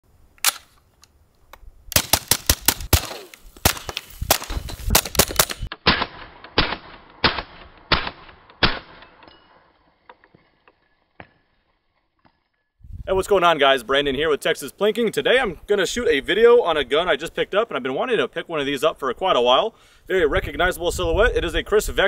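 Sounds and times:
suppressed gunshots: 1.9 - 9.1.

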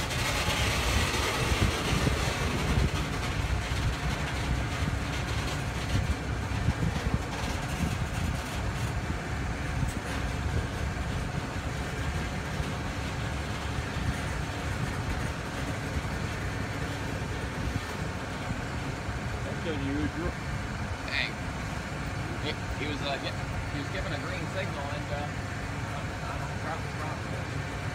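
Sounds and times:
train cars clicking and clanking: 0.0 - 19.8
steel wheels rumbling on rail: 0.0 - 27.9.

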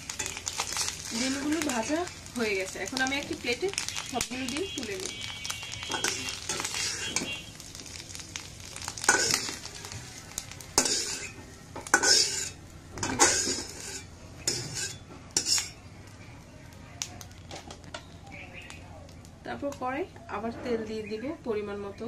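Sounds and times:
oil sizzling: 0.0 - 20.0
metal spatula scraping pan: 5.7 - 7.4, 9.0 - 9.7, 10.8 - 15.8.

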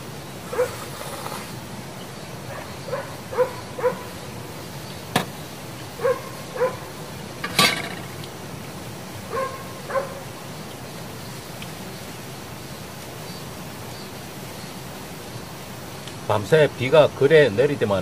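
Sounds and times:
small dog yapping: 0.5 - 0.8, 2.5 - 4.1, 6.0 - 6.9, 9.3 - 10.3.

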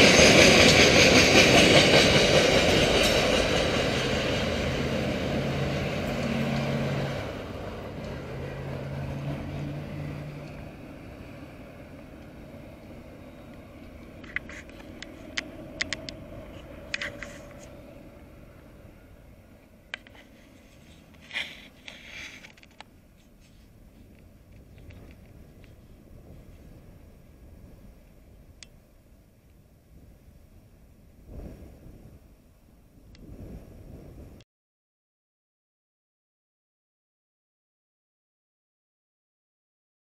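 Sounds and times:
train wagons rolling on rails: 0.0 - 29.6
sharp clicks: 14.2 - 16.2.

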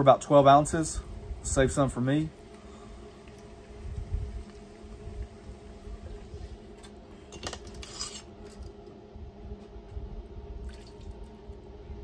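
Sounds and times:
metal scraping against steel pot: 7.3 - 8.7.

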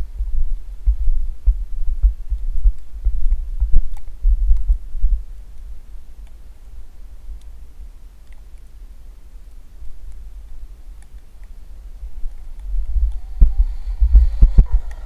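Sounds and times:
faint clicks: 5.4 - 15.0.

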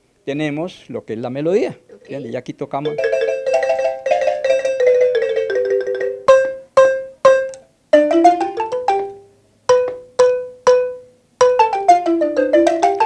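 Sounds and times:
marimba played with mallets: 2.8 - 13.0.

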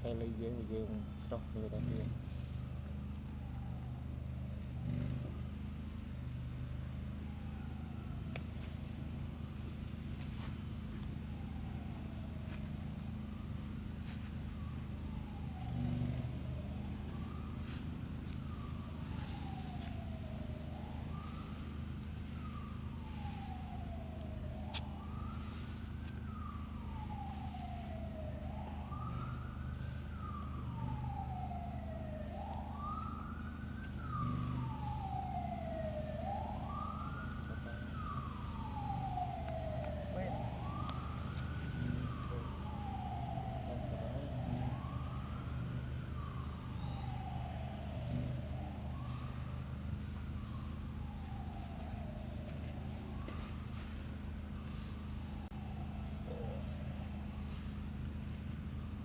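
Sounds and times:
emergency siren wailing: 0.0 - 59.0.

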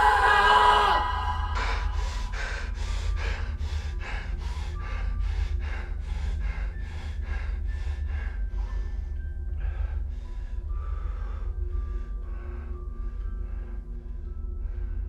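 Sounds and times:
steady low hum: 0.0 - 15.0
man breathing hard: 1.1 - 15.0.

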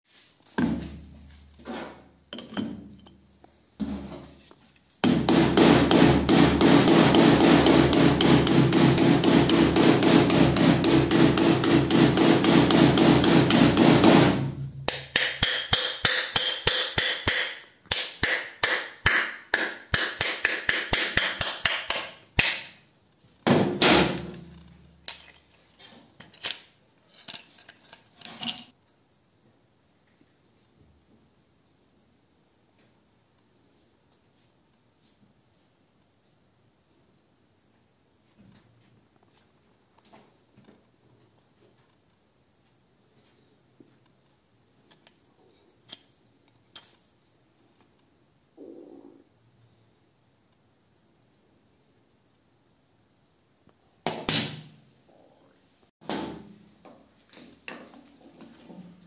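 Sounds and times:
hammer striking steel punch: 5.0 - 22.7.

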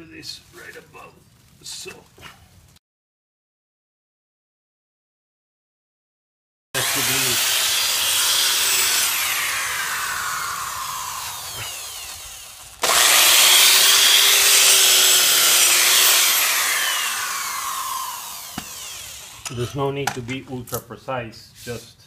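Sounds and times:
hammer drill boring into soil: 6.8 - 19.9.

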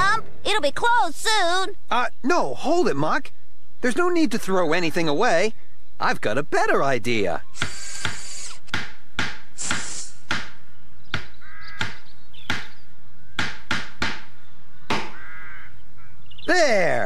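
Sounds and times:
brief hiss: 7.6 - 8.7, 9.6 - 10.3
hammer knocking on wood: 7.6 - 12.8, 13.4 - 14.3.

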